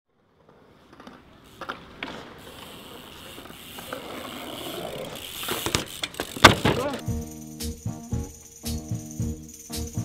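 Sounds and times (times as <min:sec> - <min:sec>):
bike tyres rolling on concrete: 0:00.1 - 0:07.2.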